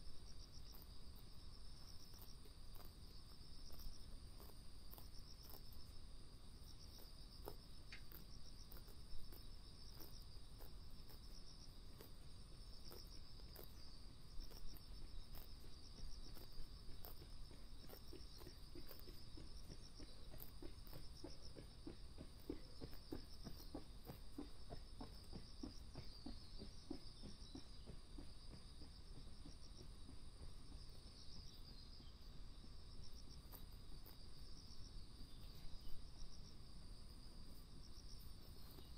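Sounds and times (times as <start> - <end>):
insects chirping: 0.0 - 38.9
deer chewing grass: 0.2 - 25.9.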